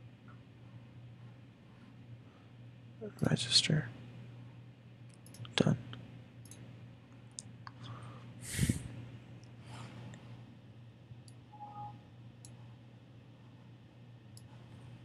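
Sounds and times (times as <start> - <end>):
low steady hum: 0.0 - 15.0
computer mouse clicks: 5.1 - 5.6
breath-like hiss: 8.4 - 8.9.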